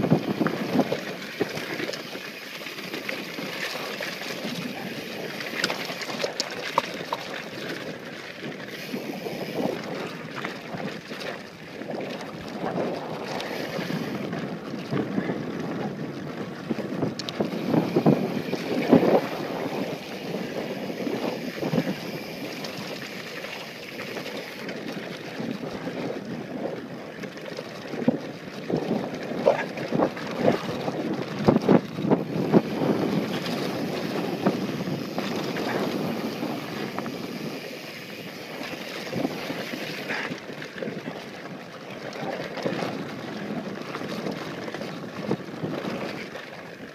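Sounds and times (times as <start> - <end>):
tyres on dirt: 0.0 - 11.2, 16.8 - 25.1, 28.1 - 40.9
bike rattling and knocking: 0.0 - 46.9
wind rush on microphone: 0.0 - 46.9.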